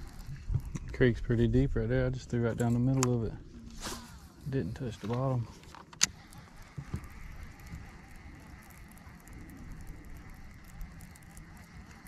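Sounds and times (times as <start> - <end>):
fishing reel whirring: 0.0 - 1.4, 5.9 - 12.0.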